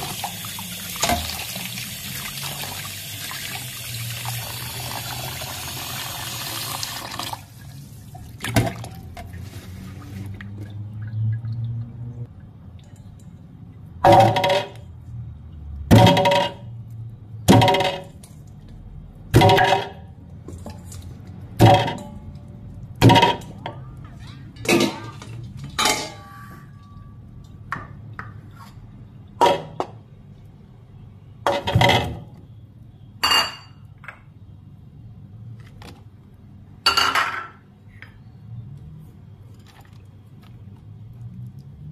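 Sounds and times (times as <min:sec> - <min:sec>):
chunks knocking into metal pot: 0:14.0 - 0:14.8, 0:15.9 - 0:16.7, 0:19.3 - 0:20.1, 0:21.6 - 0:22.2, 0:23.0 - 0:23.6.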